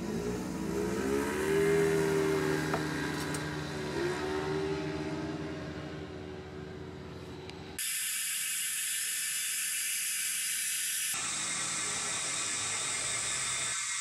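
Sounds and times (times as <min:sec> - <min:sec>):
car engine and road noise: 0:00.0 - 0:07.8, 0:11.2 - 0:13.8
steady high hiss: 0:07.8 - 0:14.0.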